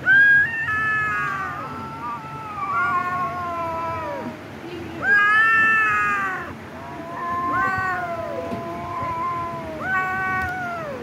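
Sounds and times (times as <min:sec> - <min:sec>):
kittens meowing: 0:00.0 - 0:04.4, 0:05.0 - 0:11.0.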